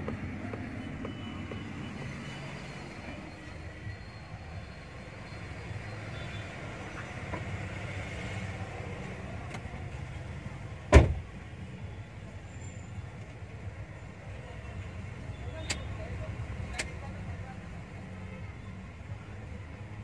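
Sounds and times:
car door shutting: 10.9s - 11.3s.

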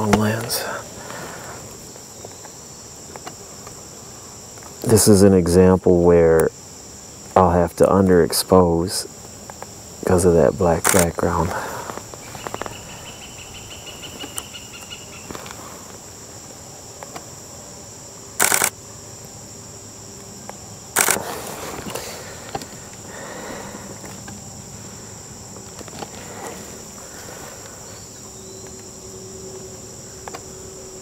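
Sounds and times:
insects chorus: 0.0s - 31.0s
loud clicks: 10.8s - 11.1s, 18.4s - 18.7s, 21.0s - 21.2s.

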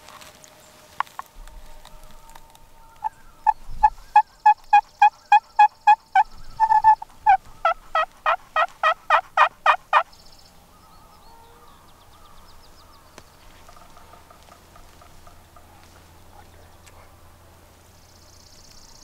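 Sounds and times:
turkey yelping: 2.9s - 10.1s.

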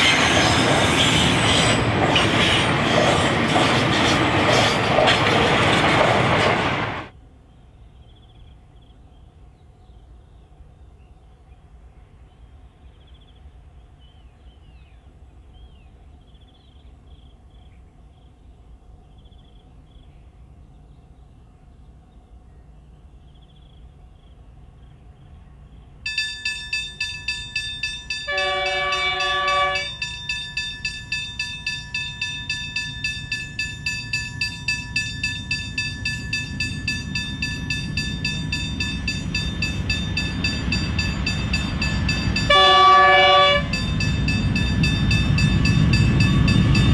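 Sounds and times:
train low rumble: 0.0s - 46.9s
rapid rhythmic ringing: 26.1s - 42.8s, 43.7s - 46.9s
train horn: 28.2s - 30.1s, 42.1s - 44.1s.

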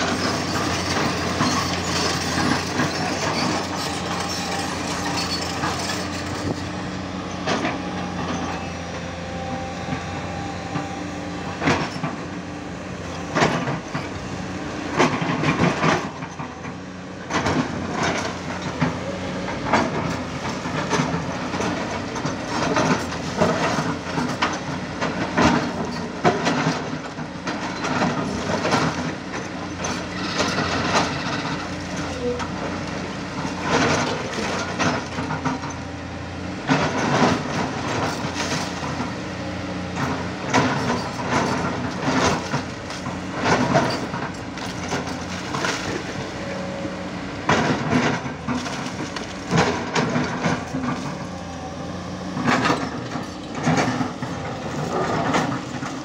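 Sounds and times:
excavator diesel engine: 0.0s - 56.0s
bucket clanking and scraping on rock: 40.0s - 56.0s.

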